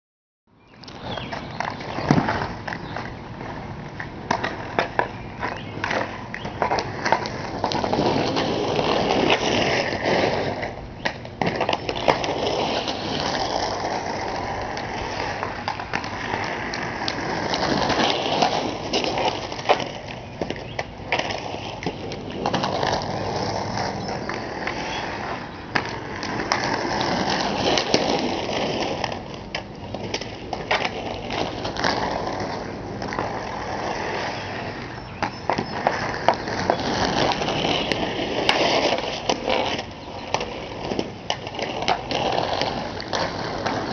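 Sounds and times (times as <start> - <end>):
skate wheels rolling on asphalt: 0.5 - 43.9
hockey stick tapping ball: 34.8 - 38.8.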